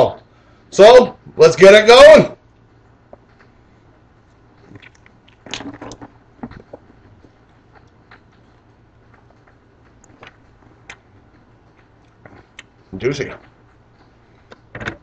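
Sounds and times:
chewing clicks: 4.6s - 5.6s, 6.6s - 12.8s.

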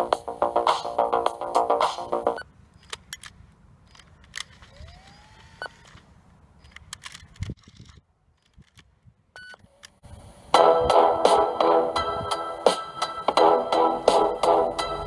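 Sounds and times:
music: 0.0s - 2.4s, 10.5s - 15.0s
rising motor whine: 4.7s - 5.8s.

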